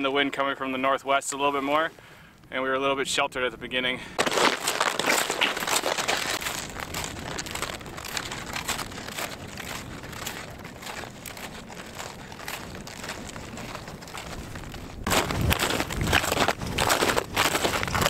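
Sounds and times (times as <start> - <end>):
boots crunching on snow: 4.2 - 18.0
sled scraping on snow: 4.2 - 18.0.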